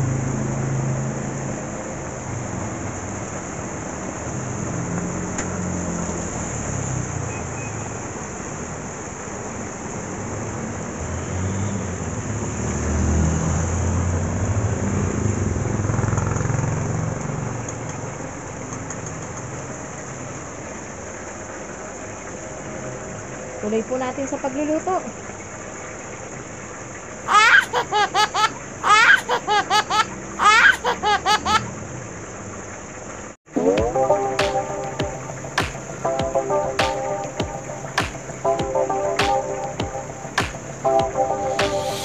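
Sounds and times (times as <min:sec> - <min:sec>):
heavy rain hissing: 0:33.6 - 0:42.0.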